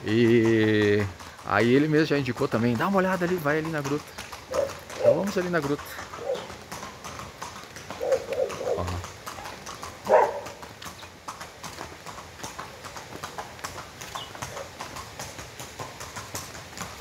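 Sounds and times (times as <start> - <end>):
footsteps on hard path: 4.0 - 17.0.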